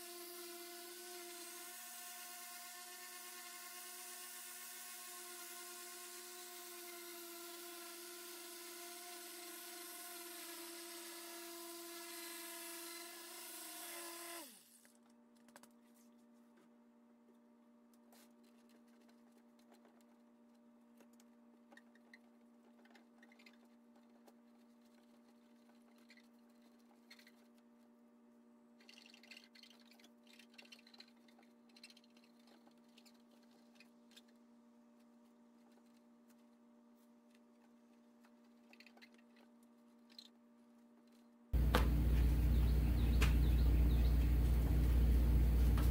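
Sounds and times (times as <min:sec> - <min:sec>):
steady low hum: 0:41.6 - 0:45.9.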